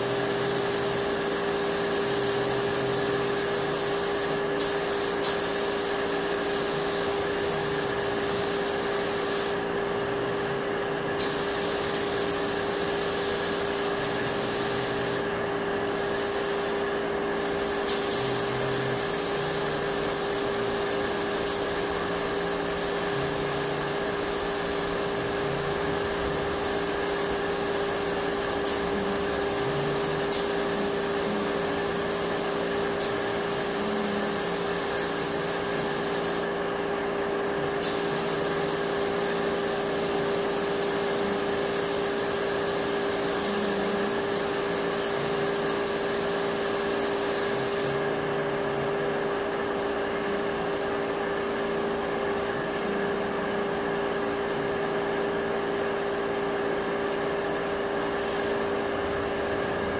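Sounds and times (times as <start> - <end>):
paint spray gun hissing: 0.0 - 9.7, 11.2 - 36.6, 37.6 - 48.1, 58.0 - 58.7
steady hum: 0.0 - 36.6, 46.5 - 56.6.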